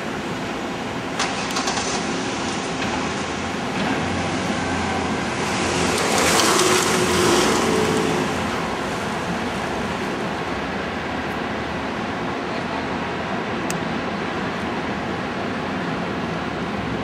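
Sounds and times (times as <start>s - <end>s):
city street traffic: 0.0s - 17.0s
vehicle passing close by: 3.9s - 10.6s.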